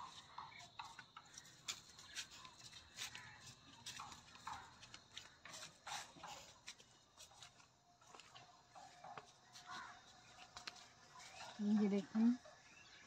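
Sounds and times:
footsteps on dry leaves: 1.3 - 8.4.

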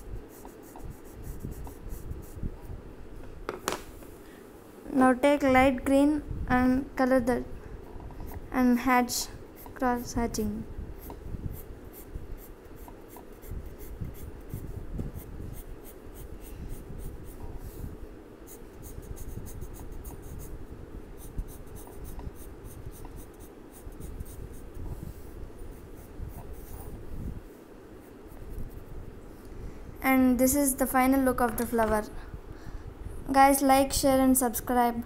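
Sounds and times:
colour pencil scratching on paper: 0.0 - 2.4, 9.6 - 10.4, 11.0 - 17.8, 18.5 - 20.6, 21.2 - 27.0.

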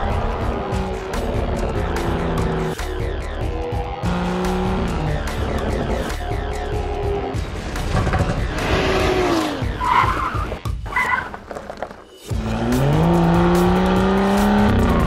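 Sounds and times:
car engine revving: 0.0 - 10.6, 12.3 - 15.0
tyre squeals: 9.7 - 11.4.

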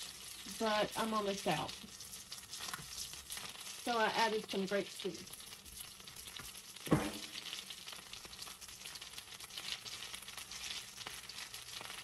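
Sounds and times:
meat sizzling in hot oil: 0.0 - 12.0
sharp thump: 6.9 - 7.3.

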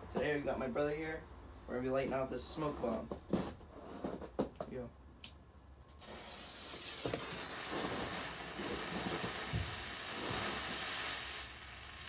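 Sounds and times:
smoke bomb hissing: 6.0 - 12.0.

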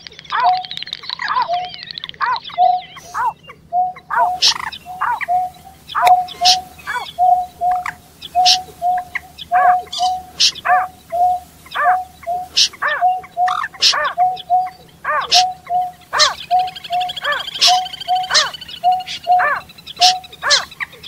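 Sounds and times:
high warbling bird trill: 0.0 - 21.0
marsh birds calling: 0.0 - 21.0
sharp high bird calls: 0.0 - 21.0.

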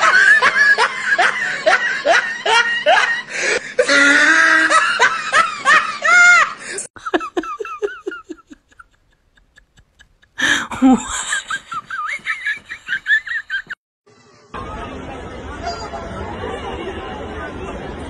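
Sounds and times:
people laughing: 0.0 - 13.8.

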